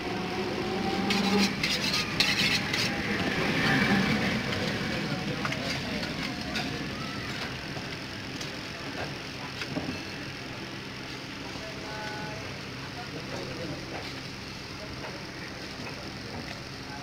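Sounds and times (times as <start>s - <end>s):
knife scraping through meat: 1.0s - 3.0s
faint voices: 1.1s - 17.0s.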